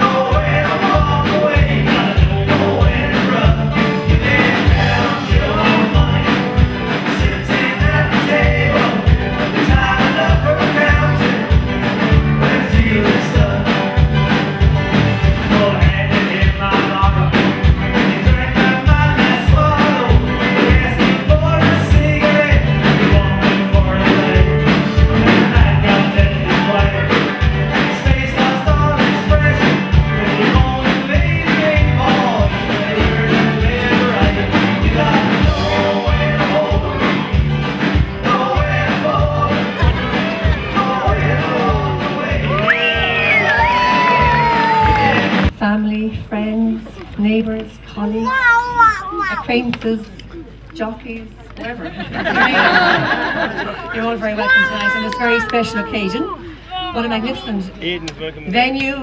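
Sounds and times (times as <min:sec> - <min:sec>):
song with singing over a beat: 0:00.0 - 0:45.5.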